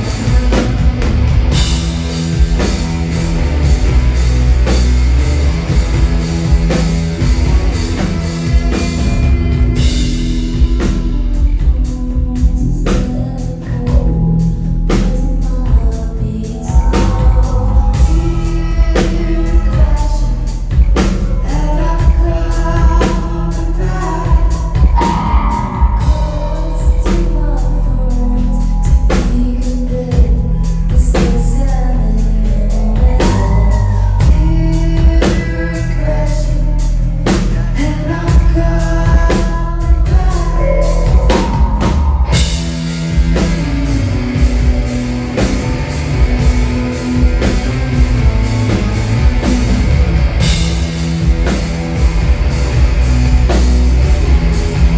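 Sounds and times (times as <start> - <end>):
live rock band playing: 0.0 - 54.9
woman singing: 6.5 - 42.6.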